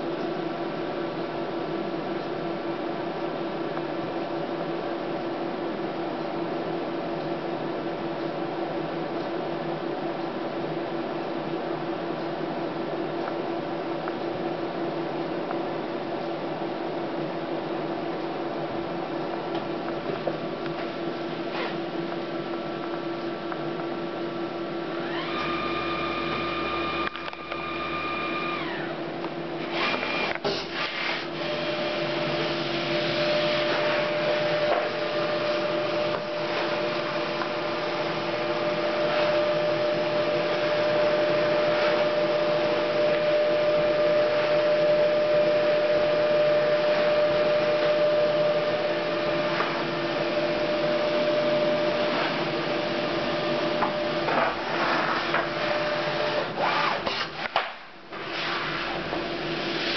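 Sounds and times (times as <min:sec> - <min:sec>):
mechanical whine: 0:24.5 - 0:57.4
label printer running: 0:25.0 - 0:57.6.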